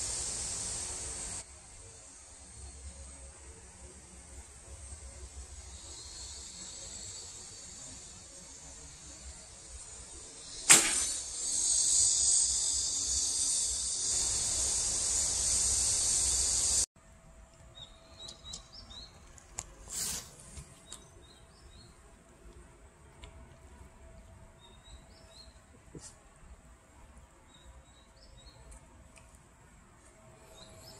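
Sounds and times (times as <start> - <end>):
high-pitched insect buzz: 0.0 - 16.9
bow string snap: 10.6 - 11.6.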